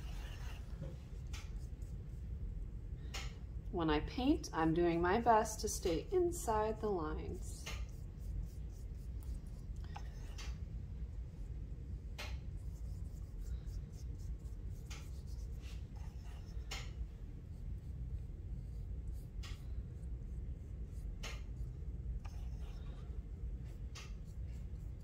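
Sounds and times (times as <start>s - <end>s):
paintbrush strokes on paper: 0.0s - 2.5s, 6.8s - 10.4s, 12.5s - 25.0s
brush swirling on paint cake: 0.0s - 3.0s, 6.7s - 25.0s
low steady hum: 0.0s - 25.0s.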